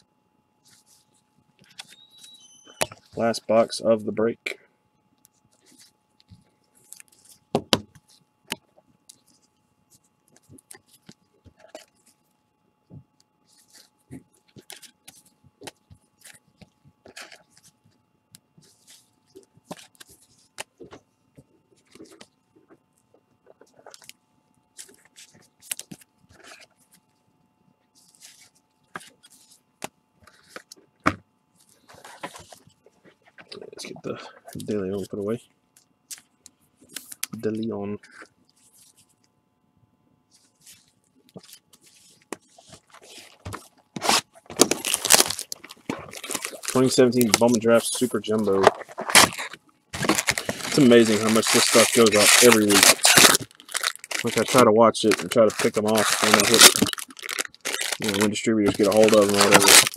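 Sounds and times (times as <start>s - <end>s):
plastic packaging crinkling: 40.8s - 59.9s.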